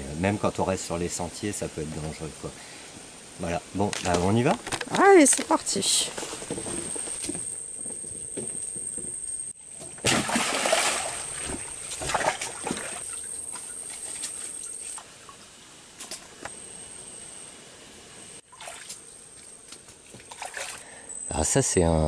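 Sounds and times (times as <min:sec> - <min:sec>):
forest background: 0:00.0 - 0:22.0
boots splashing through water: 0:10.0 - 0:14.2.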